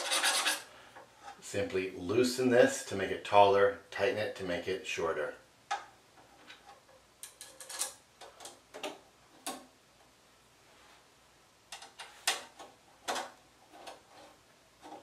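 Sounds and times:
small metal clicks: 5.7s - 9.7s.

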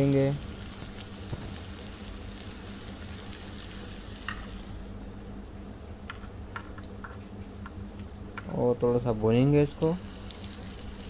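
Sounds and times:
tomatoes sizzling in hot oil: 0.0s - 5.0s.

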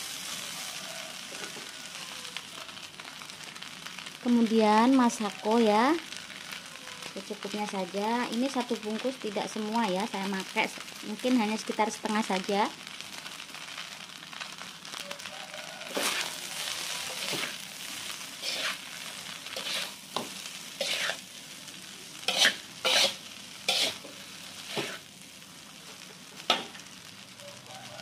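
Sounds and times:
sizzle of frying: 0.0s - 28.0s
metal spatula scraping a wok: 15.8s - 21.3s, 22.2s - 25.0s.

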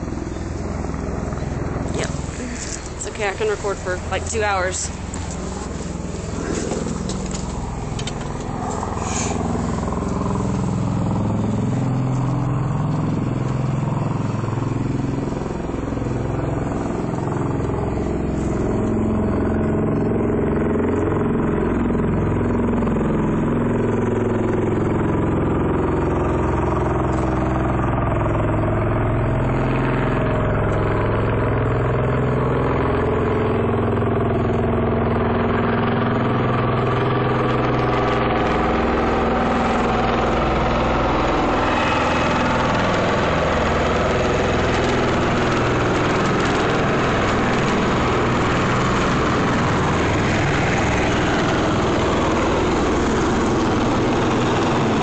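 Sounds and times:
aircraft rotors droning: 0.0s - 55.0s.

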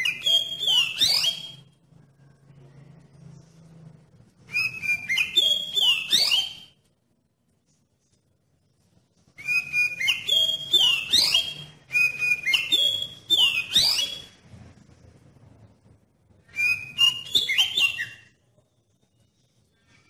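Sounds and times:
bird singing whistled phrases: 0.0s - 1.7s, 4.5s - 6.8s, 9.4s - 14.4s, 16.4s - 18.4s.

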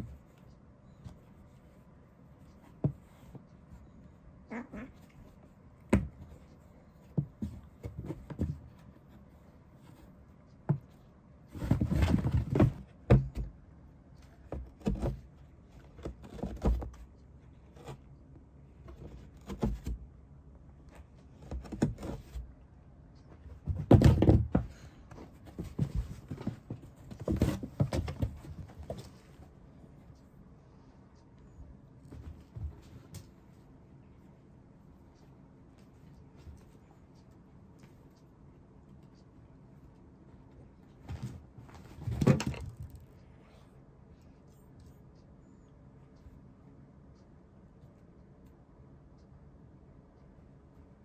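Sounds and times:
cats scuffling: 4.8s - 13.5s, 23.2s - 30.1s, 40.5s - 43.2s
bumps and knocks on cardboard: 5.9s - 6.4s, 7.1s - 8.8s, 11.5s - 13.5s, 23.5s - 29.2s.

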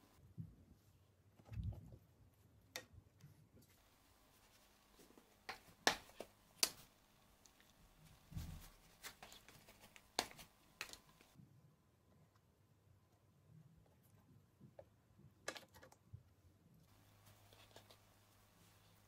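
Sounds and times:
handling soft dough: 0.0s - 11.4s.

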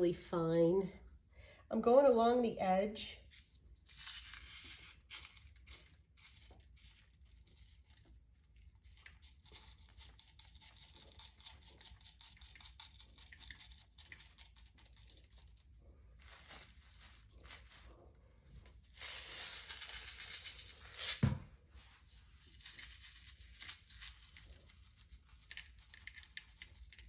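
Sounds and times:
crushed glass crackling and ticking: 23.2s - 27.0s.

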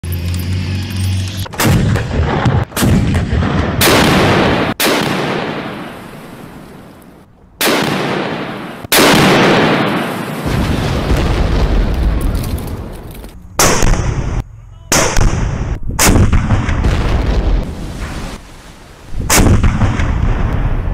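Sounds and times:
vehicle engine running: 0.0s - 1.6s
heavy gun shots echoing: 1.5s - 6.1s, 7.6s - 12.9s, 13.6s - 17.8s, 19.2s - 20.9s.

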